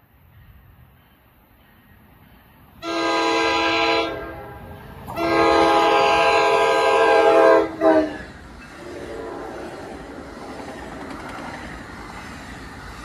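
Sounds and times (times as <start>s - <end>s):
train air horn chord: 2.8s - 8.2s.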